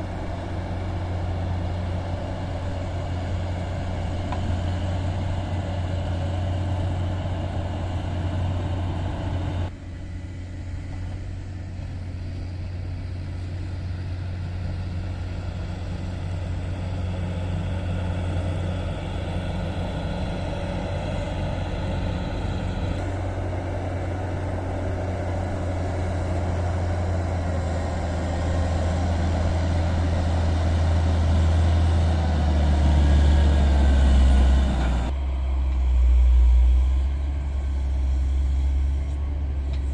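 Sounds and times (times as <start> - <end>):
diesel engine droning: 0.0 - 39.9.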